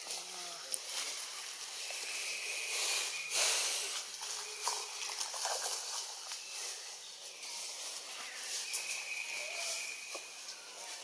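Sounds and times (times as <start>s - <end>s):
faint steady high tone: 7.3s - 11.0s.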